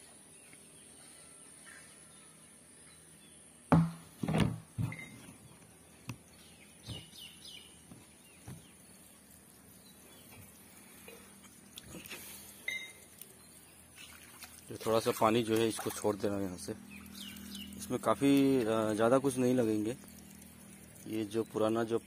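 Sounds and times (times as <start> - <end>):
knocks on plastic water tank: 3.7 - 5.0
bird chirping: 4.9 - 14.5, 16.6 - 21.9.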